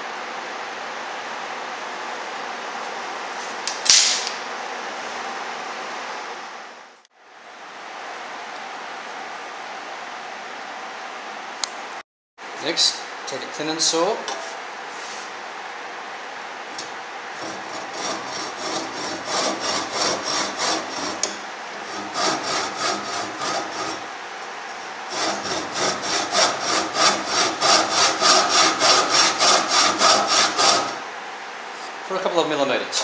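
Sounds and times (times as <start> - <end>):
hand saw cutting wood: 16.8 - 24.1, 24.7 - 31.0.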